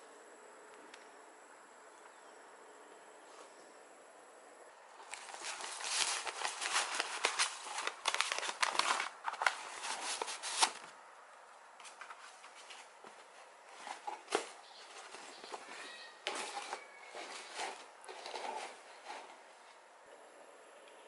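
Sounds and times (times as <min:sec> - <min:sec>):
handling noises: 0:05.0 - 0:11.0, 0:11.7 - 0:19.9
paper rustling and crackling: 0:05.0 - 0:11.0, 0:11.8 - 0:19.5.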